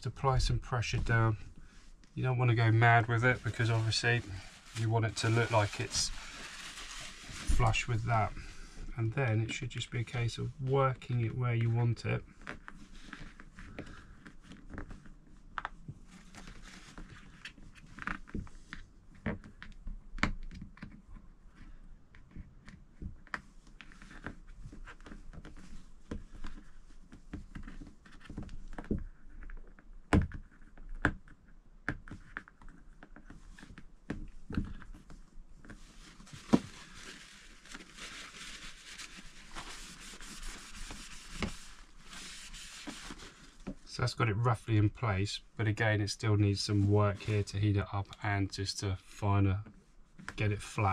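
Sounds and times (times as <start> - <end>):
tissue rustling on frame: 1.0 - 9.0, 33.3 - 43.9.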